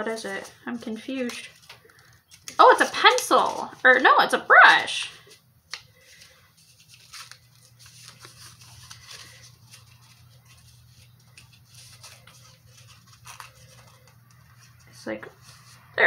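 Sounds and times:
cardboard packaging rustling: 0:06.0 - 0:16.0.

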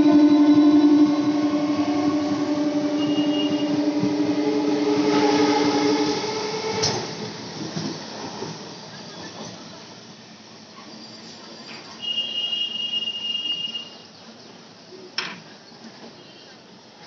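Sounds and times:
train rumbling along rails: 0:00.0 - 0:12.1.

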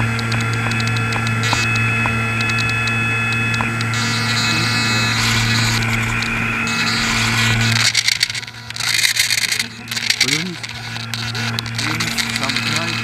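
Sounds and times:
electric motor and propeller whining: 0:00.0 - 0:13.0.

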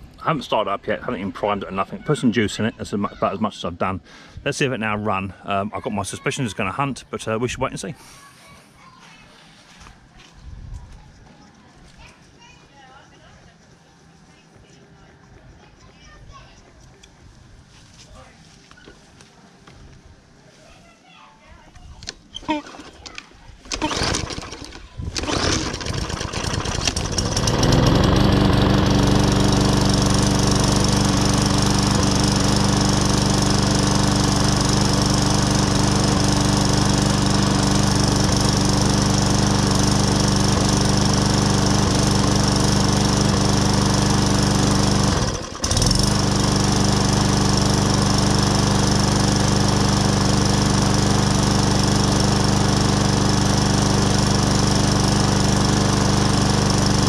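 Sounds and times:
lawn mower engine running: 0:22.0 - 0:57.0.

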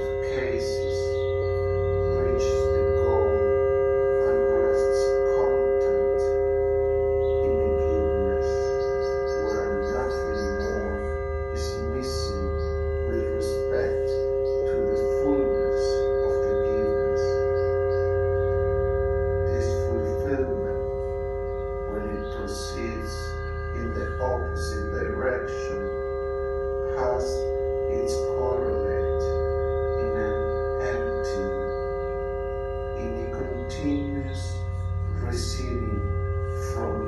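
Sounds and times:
synthesiser drone: 0:00.0 - 0:37.0.

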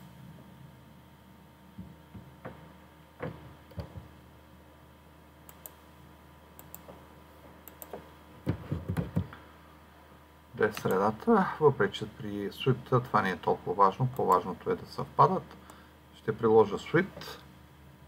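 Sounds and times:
faint steady hum: 0:00.0 - 0:18.0
computer mouse clicking: 0:05.5 - 0:05.8, 0:06.6 - 0:07.0, 0:07.6 - 0:08.0.

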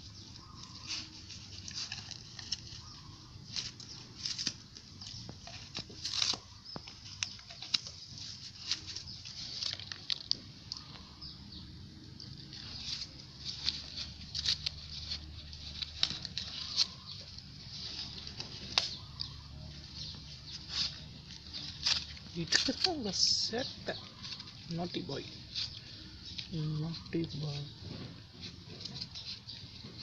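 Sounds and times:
plastic wrapper crinkling: 0:00.0 - 0:11.4
dog chewing: 0:00.2 - 0:11.4.

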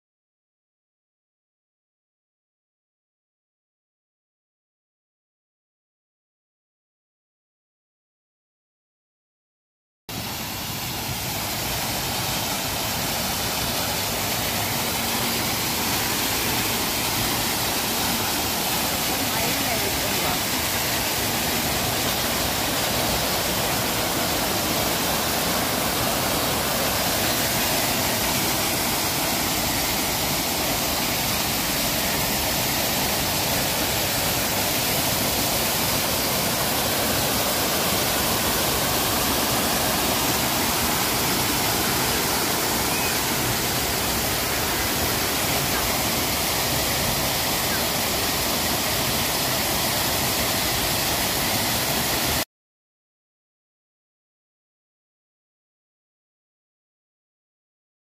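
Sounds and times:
water cascading over rocks: 0:10.1 - 0:52.4.

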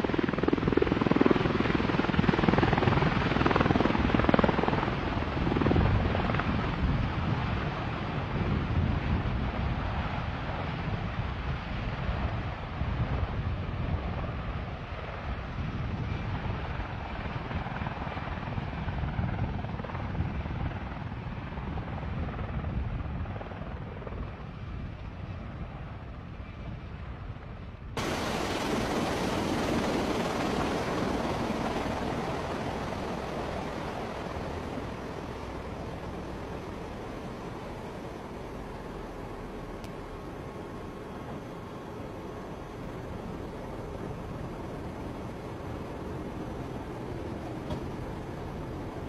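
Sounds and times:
aircraft rotors and engines: 0:00.0 - 0:49.0.

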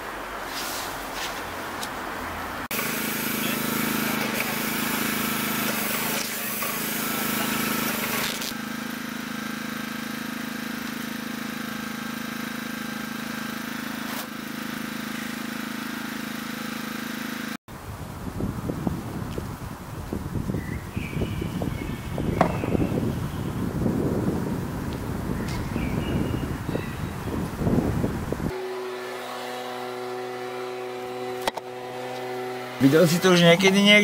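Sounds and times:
paint spraying hiss: 0:02.7 - 0:08.3
machine hum: 0:21.6 - 0:34.0.

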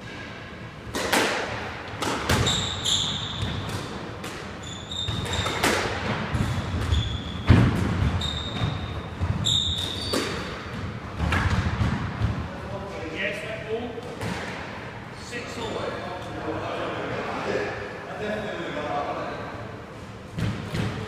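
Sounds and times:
squash ball hits: 0:00.9 - 0:12.6, 0:14.0 - 0:14.8, 0:20.3 - 0:21.0
shoes squeaking on wooden floor: 0:02.4 - 0:03.7, 0:04.6 - 0:05.7, 0:06.4 - 0:10.5.

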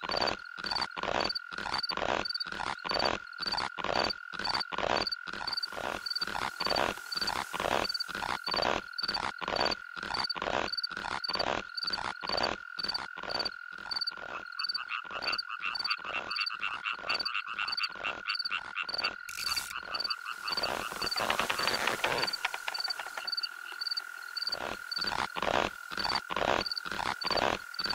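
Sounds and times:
frog croaking: 0:00.0 - 0:27.9
high insect-like trill: 0:04.5 - 0:12.0, 0:18.4 - 0:27.9.

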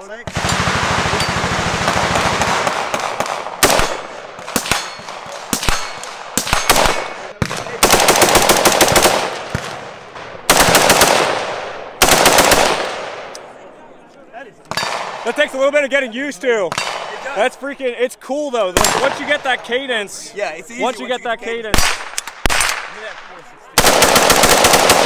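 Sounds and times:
rifle gunshots: 0:00.2 - 0:13.3, 0:14.7 - 0:15.3, 0:16.7 - 0:17.2, 0:18.8 - 0:19.5, 0:21.7 - 0:25.0.

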